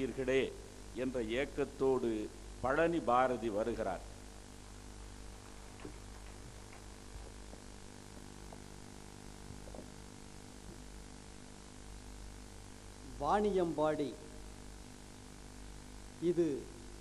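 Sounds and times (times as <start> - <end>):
low electrical hum: 0.0 - 17.0
faint small ticks: 5.8 - 8.8.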